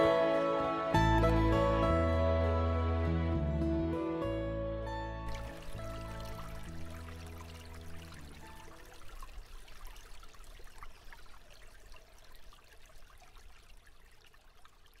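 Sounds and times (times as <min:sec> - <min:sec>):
water trickling and splashing: 0:05.3 - 0:15.0.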